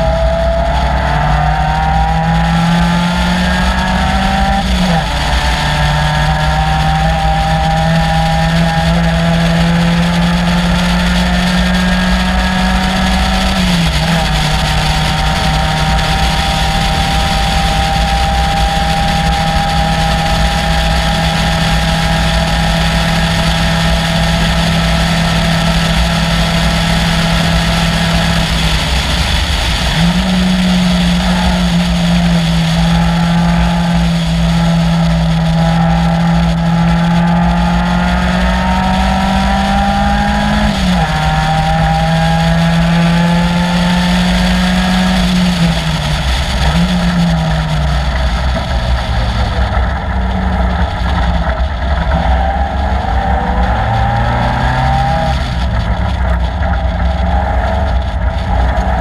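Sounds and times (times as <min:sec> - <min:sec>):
racing engine running hard: 0:00.0 - 0:59.0.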